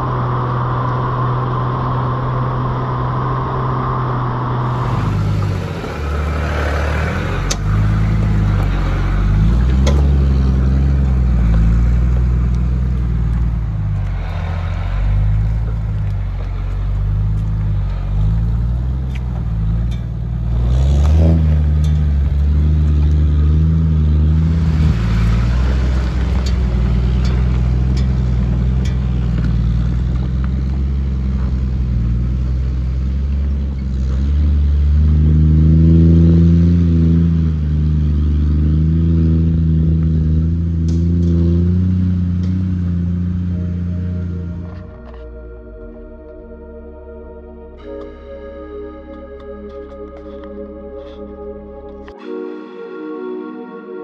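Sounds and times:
engine working under load: 0:00.0 - 0:54.0.

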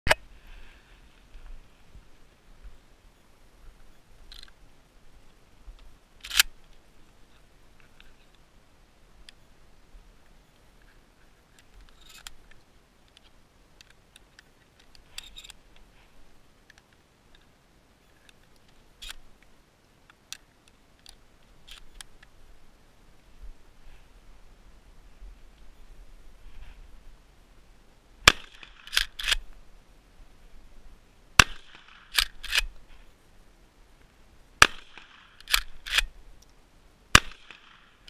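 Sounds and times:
shotgun handling clicks: 0:06.2 - 0:06.8, 0:18.2 - 0:19.2, 0:20.1 - 0:22.3, 0:28.3 - 0:29.4, 0:31.4 - 0:32.8, 0:34.6 - 0:36.6.

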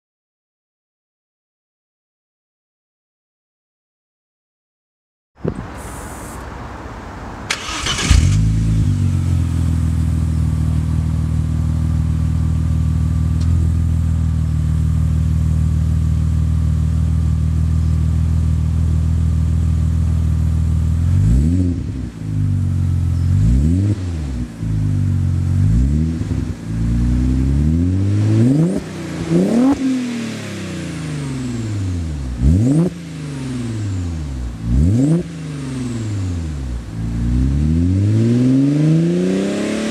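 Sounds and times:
car engine starting and idling: 0:05.6 - 0:37.6
engine revving blips: 0:07.5 - 0:09.2, 0:27.3 - 0:39.9.

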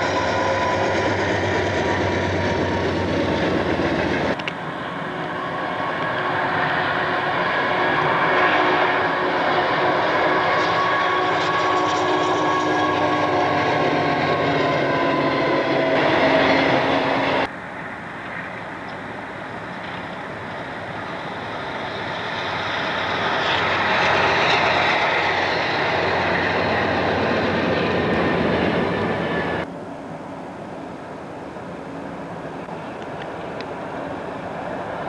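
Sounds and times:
diesel locomotives passing: 0:00.0 - 0:35.0
freight train rolling past: 0:00.0 - 0:35.0.

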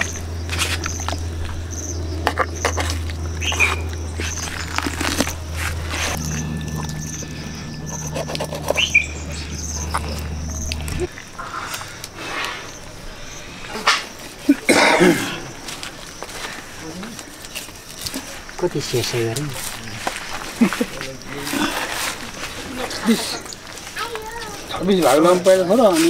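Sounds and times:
steady low hum: 0:00.0 - 0:15.9
short chirps: 0:06.0 - 0:11.1.

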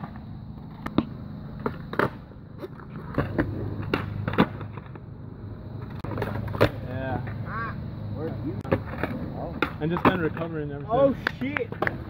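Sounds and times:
skateboard clacks: 0:00.0 - 0:05.0, 0:08.6 - 0:12.0
skateboard wheels rolling on concrete: 0:00.0 - 0:12.0.

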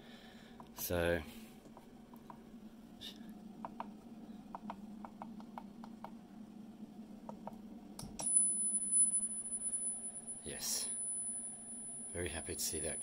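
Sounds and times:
low steady hum: 0:00.0 - 0:13.0
high-pitched machine whine: 0:08.2 - 0:13.0.

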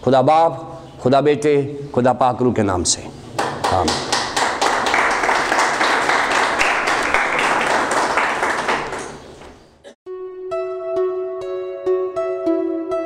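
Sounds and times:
crowd applause: 0:03.4 - 0:09.4.

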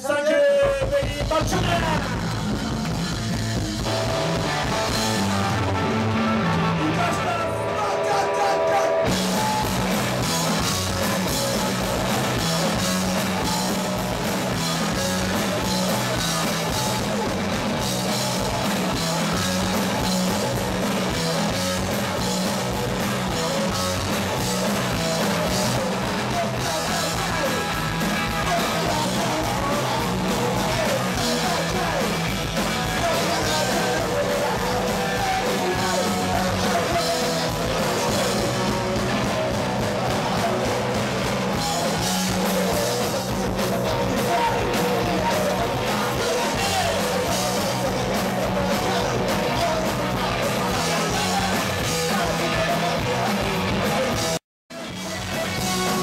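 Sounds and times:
driving bass line: 0:00.0 - 0:56.0
punk rock band playing live: 0:00.0 - 0:56.0.

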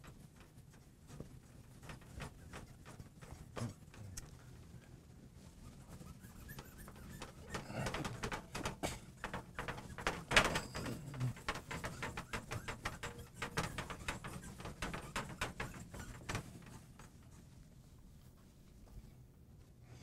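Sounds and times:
cloth rubbing on glass: 0:05.3 - 0:17.9.

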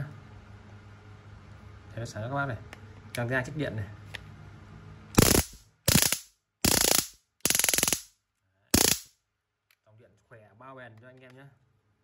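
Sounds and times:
stun gun electric crackle: 0:05.2 - 0:08.1, 0:08.8 - 0:09.1.

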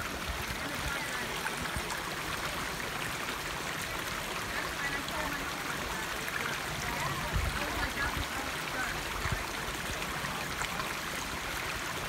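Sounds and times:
creek trickling over rocks: 0:00.0 - 0:12.0.

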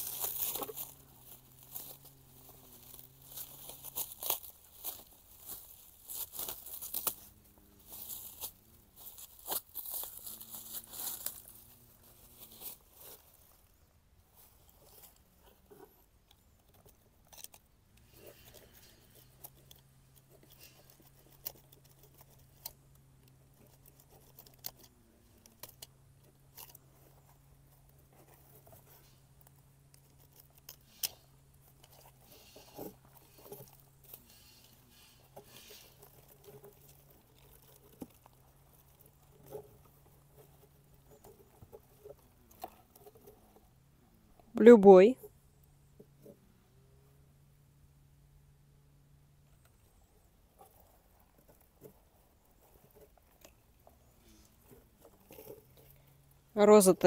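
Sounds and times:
rustles of plastic packaging: 0:00.0 - 0:13.6
faint low hum: 0:00.0 - 0:57.0.

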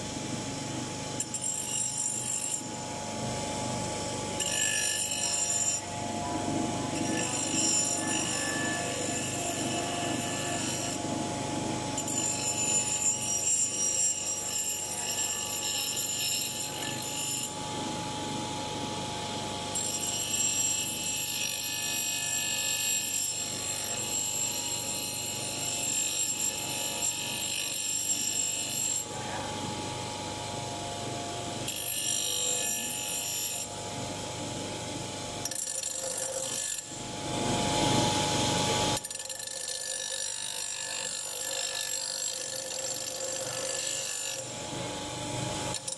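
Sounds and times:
bench grinder motor whine: 0:04.1 - 0:13.8
metal rasping on grinding wheel: 0:07.0 - 0:11.0.

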